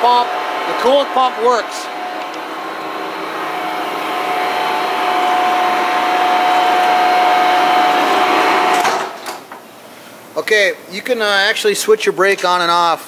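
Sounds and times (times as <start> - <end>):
coolant pump whirring: 0.0 - 9.2.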